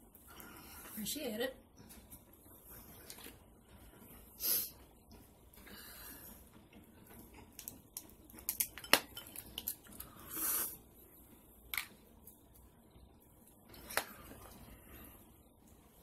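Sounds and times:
crab shells cracking: 7.5 - 10.1
cutlery clinking against plates: 8.5 - 9.8.

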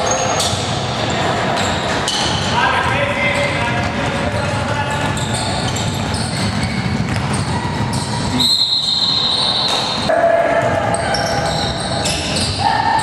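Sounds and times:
basketball bouncing: 2.1 - 8.4
referee's whistle blast: 8.4 - 10.1.

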